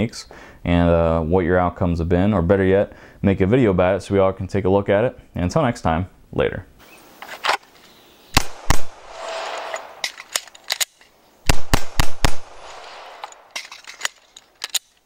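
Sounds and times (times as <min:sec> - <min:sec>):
pistol shots: 0:08.4 - 0:13.9.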